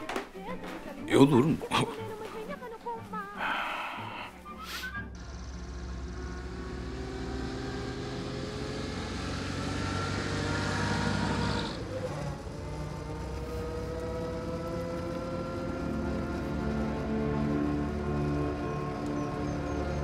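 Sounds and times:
car engine gaining speed: 0:05.0 - 0:20.0.

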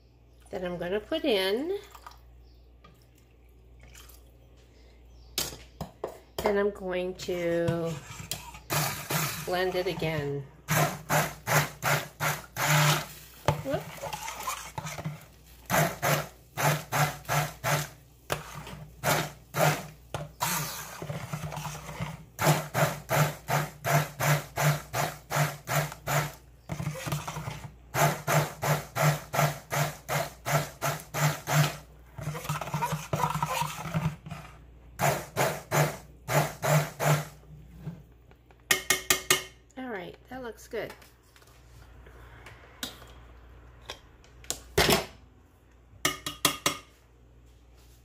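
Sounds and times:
stick blender whirring: 0:07.8 - 0:37.4.

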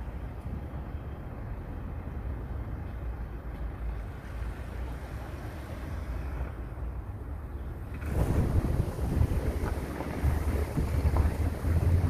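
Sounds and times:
wind rumble on microphone: 0:05.0 - 0:12.0.

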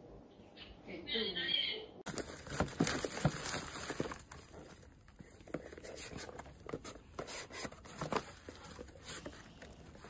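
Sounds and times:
plastic packaging crinkling: 0:02.1 - 0:10.0.

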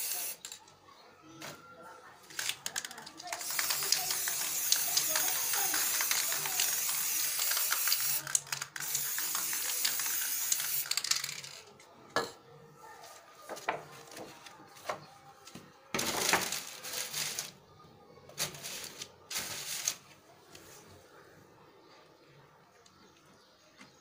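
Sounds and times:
spray can hissing: 0:00.0 - 0:00.5, 0:02.8 - 0:11.6, 0:18.4 - 0:20.0
can and paper taps and clicks: 0:02.3 - 0:11.6.

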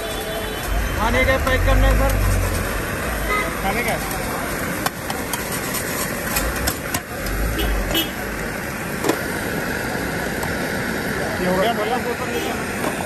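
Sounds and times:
street noise: 0:00.0 - 0:13.0
metal spatula scraping a pan: 0:05.2 - 0:06.8.

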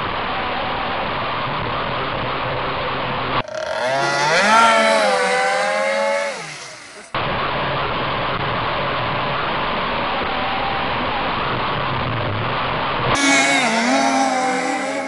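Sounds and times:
boat engine passing by: 0:03.4 - 0:07.1, 0:13.2 - 0:15.0.

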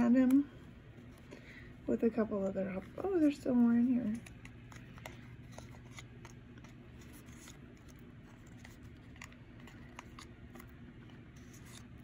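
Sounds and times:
steady low hum: 0:00.0 - 0:12.0
sticker pack rustling: 0:02.7 - 0:12.0.

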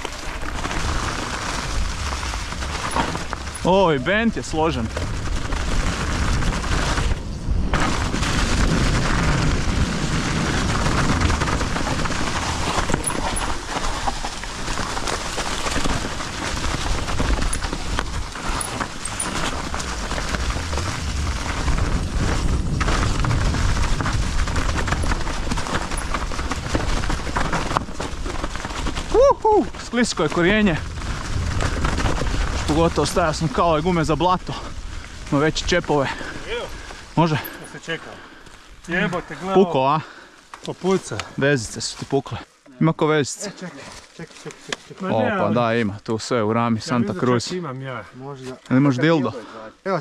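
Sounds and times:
tyre noise: 0:00.0 - 0:37.6
bike clattering and rattling: 0:00.0 - 0:38.8
wind rushing over microphone: 0:00.6 - 0:14.0, 0:15.8 - 0:37.2.

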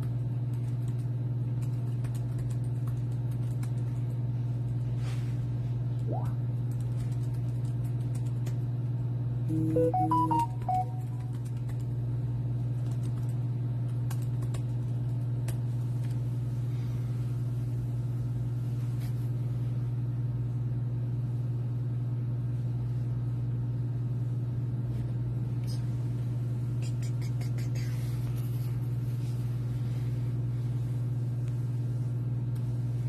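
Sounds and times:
steady low hum: 0:00.0 - 0:33.0
electronic beep jingle: 0:09.5 - 0:11.1.

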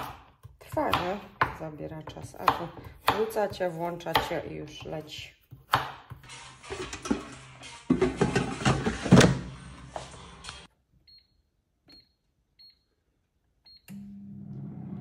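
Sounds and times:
pans and utensils clattering: 0:06.5 - 0:09.6.

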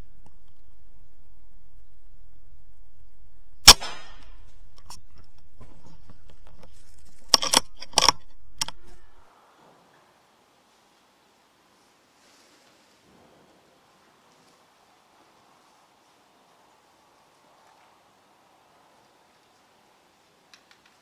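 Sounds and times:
air rifle shot: 0:03.6 - 0:04.5
quick sharp clicks: 0:07.3 - 0:09.0.

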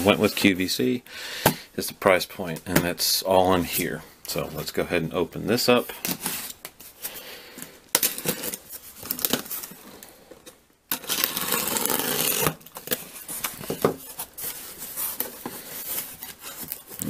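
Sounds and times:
packaging rustling: 0:06.0 - 0:17.0
box packaging clicks and knocks: 0:12.9 - 0:14.1.

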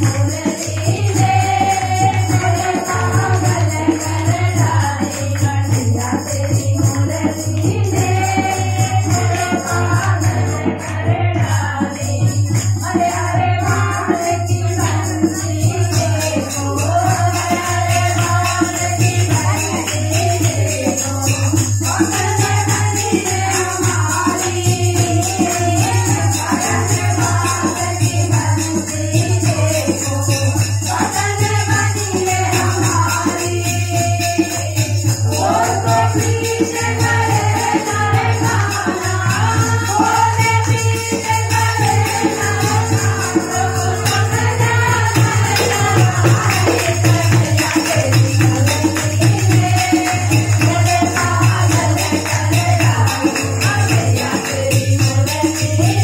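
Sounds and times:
jingling hand percussion: 0:00.0 - 0:56.0
women singing together: 0:00.0 - 0:56.0
hand-clapping: 0:45.2 - 0:55.1.

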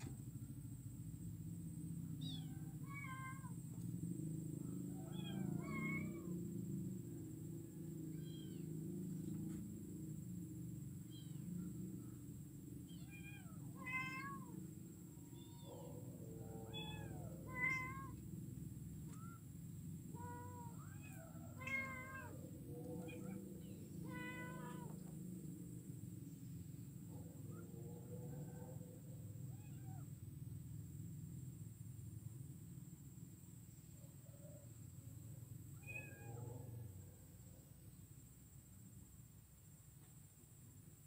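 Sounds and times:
low background rumble: 0:00.0 - 0:41.0
kittens meowing: 0:02.2 - 0:03.6, 0:05.0 - 0:06.4, 0:08.0 - 0:08.8, 0:11.0 - 0:11.5, 0:12.9 - 0:14.6, 0:15.2 - 0:15.8, 0:16.6 - 0:18.3, 0:19.0 - 0:19.4, 0:20.1 - 0:25.1, 0:29.5 - 0:30.1, 0:35.8 - 0:36.4.

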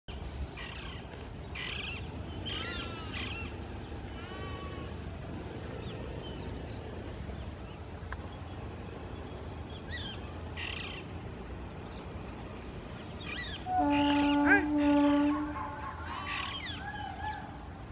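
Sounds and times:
parakeets screeching and calling: 0:13.2 - 0:17.5.

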